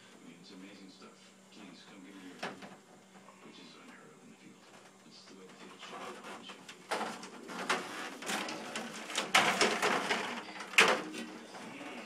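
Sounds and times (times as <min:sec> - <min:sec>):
cloth rubbing against microphone: 0:05.6 - 0:06.6.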